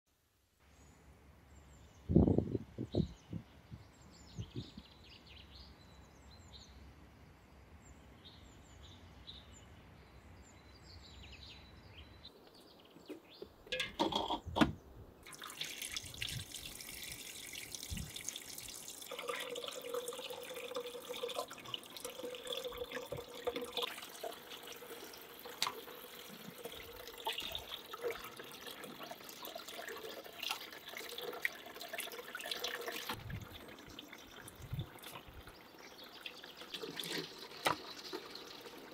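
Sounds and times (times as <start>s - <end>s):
tap water splashing into metal bowl: 15.2s - 35.6s, 36.2s - 38.8s.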